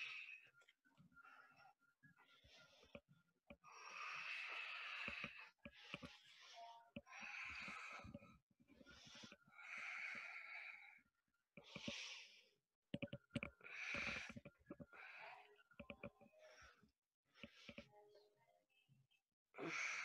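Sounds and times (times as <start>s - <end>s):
deep breathing: 3.7s - 11.0s.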